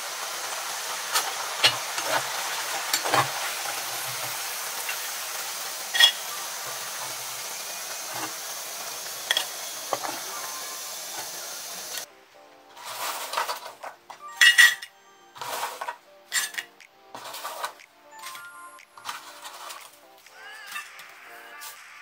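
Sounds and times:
fries sizzling in hot oil: 0.0 - 12.1, 12.8 - 13.8, 15.4 - 17.8, 18.9 - 22.0
metal skimmer clinking on pot: 5.9 - 6.3.

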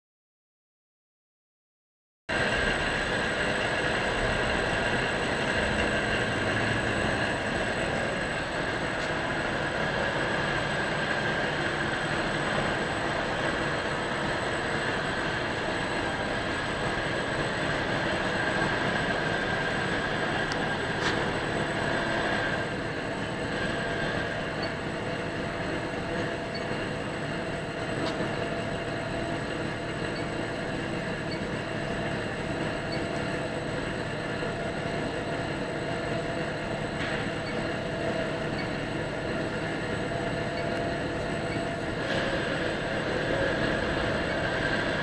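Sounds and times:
moulding machine running: 2.3 - 45.0.

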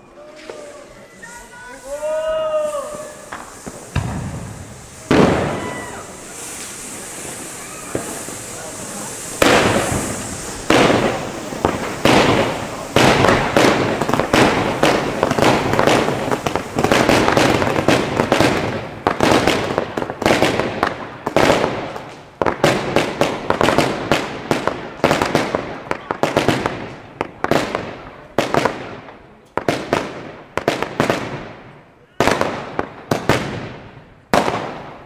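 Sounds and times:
firework bangs: 0.0 - 35.0.

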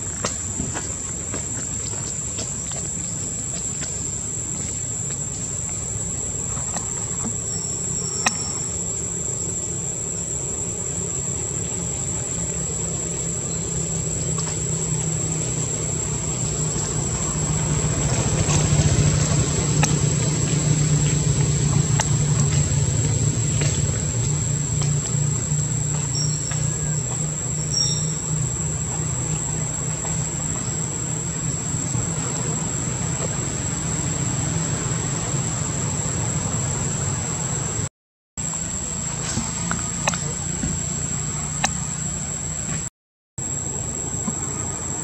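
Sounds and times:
high-pitched insect drone: 3.0 - 37.8.

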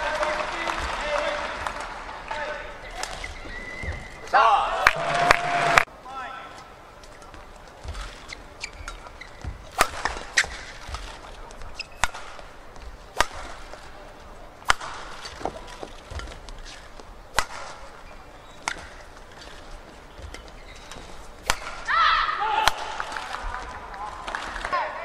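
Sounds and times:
shoe squeaks on court: 2.9 - 4.3, 8.0 - 10.8, 11.7 - 12.4, 18.0 - 18.8, 19.4 - 21.3
rackets striking shuttlecock: 7.1 - 14.0, 14.6 - 24.7.

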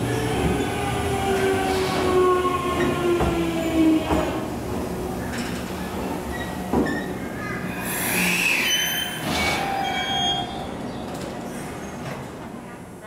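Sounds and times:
train wheels squealing on rails: 6.3 - 12.2.

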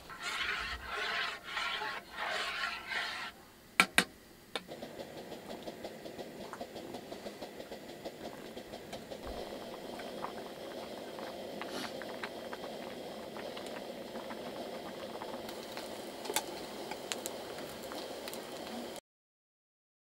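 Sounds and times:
scraping as pot is stirred: 0.0 - 3.5
pot bubbling and popping: 0.0 - 19.0.

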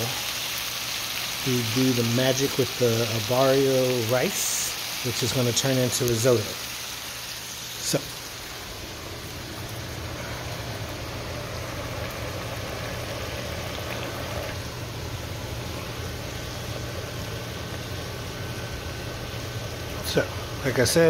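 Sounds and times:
risotto bubbling in a pan: 6.8 - 20.6
low steady hum: 7.4 - 21.0.

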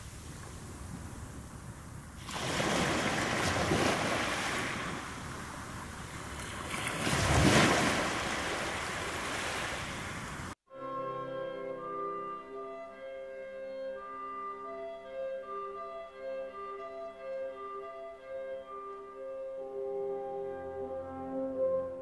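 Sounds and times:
surf washing over rocks: 2.1 - 10.6.

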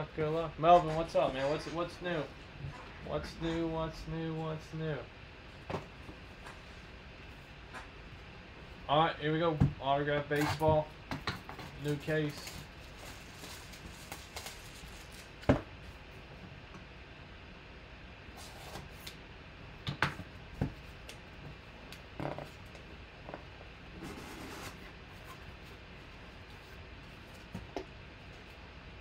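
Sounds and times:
plastic wrap crinkling: 11.7 - 15.5.

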